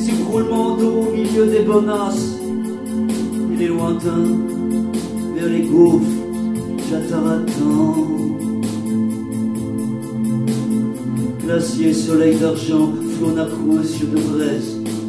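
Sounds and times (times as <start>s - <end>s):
man singing: 0.0s - 2.5s, 3.4s - 4.6s, 5.3s - 6.2s, 6.8s - 8.6s, 11.4s - 14.8s
fast ticking percussion: 0.0s - 15.0s
organ-like electronic keyboard: 0.0s - 15.0s.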